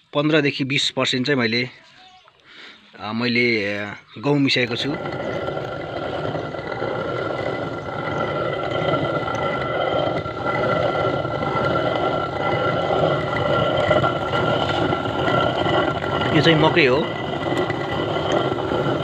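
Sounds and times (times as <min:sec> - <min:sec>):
stone quern grinding grain: 0:04.4 - 0:19.0.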